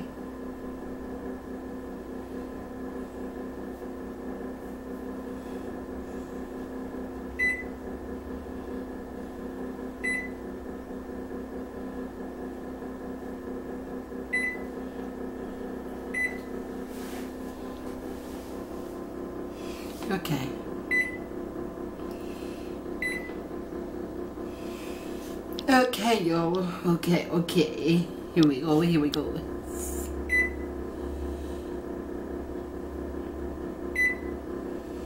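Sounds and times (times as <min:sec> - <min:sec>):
microwave oven humming: 0:00.0 - 0:35.0.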